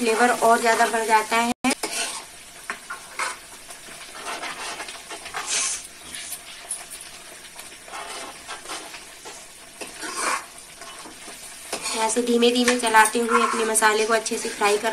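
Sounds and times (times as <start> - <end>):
paste sizzling in a pan: 0.0 - 14.9
metal ladle scraping a pan: 1.7 - 14.9.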